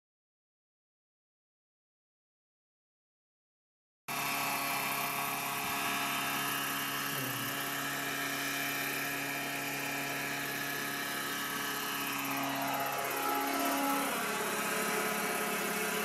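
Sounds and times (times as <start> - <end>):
helicopter engine and rotor: 4.1 - 16.0.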